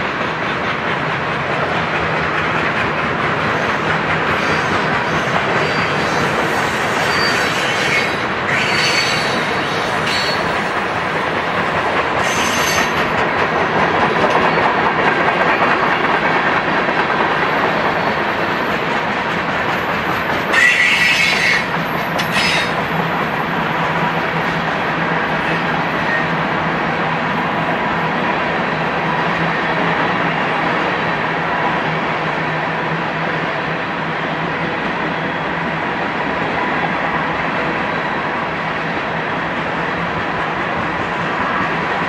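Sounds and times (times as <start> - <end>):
train wheels rumbling on rail: 0.0 - 42.0
high-pitched wheel squeals: 4.4 - 10.6, 12.2 - 13.0, 20.5 - 22.8.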